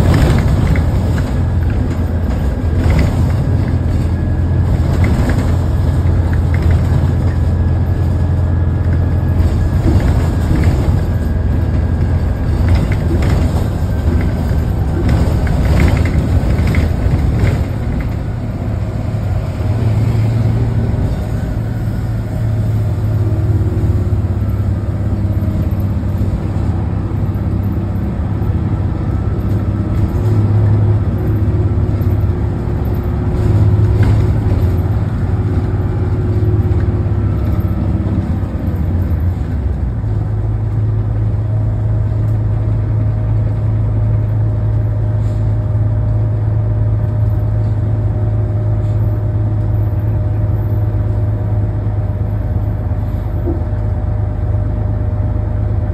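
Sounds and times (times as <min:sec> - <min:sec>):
rattles and knocks: 0:00.0 - 0:18.7, 0:29.4 - 0:39.2
bus interior drone: 0:00.0 - 0:55.9.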